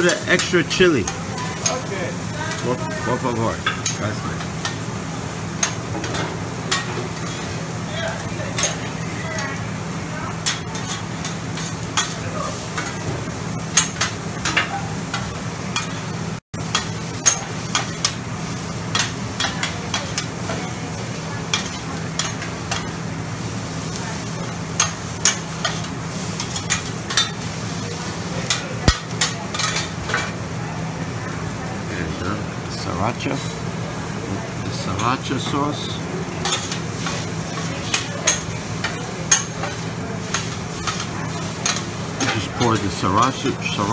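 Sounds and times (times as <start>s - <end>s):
food sizzling: 0.0s - 43.9s.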